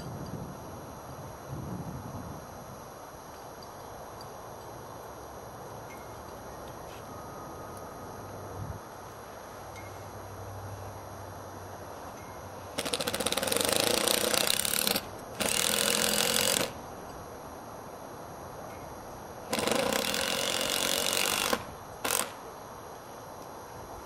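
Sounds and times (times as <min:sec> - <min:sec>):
power driver driving screw: 0:12.8 - 0:16.8, 0:19.5 - 0:22.4.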